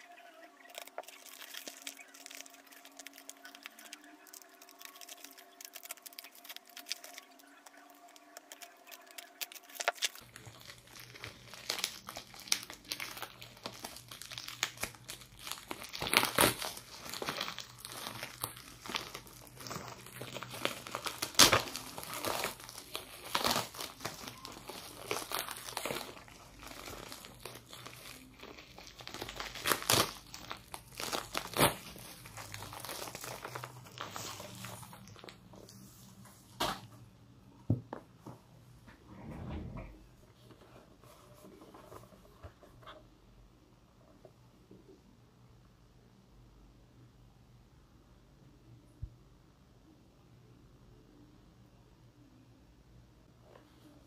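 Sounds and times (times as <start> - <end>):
plastic mailer and bubble wrap crinkling: 0.0 - 36.9.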